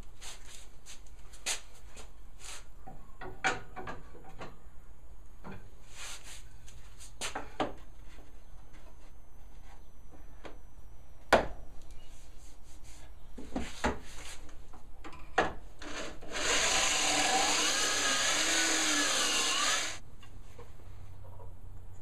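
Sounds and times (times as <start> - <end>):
corded drill boring wood: 15.8 - 20.0.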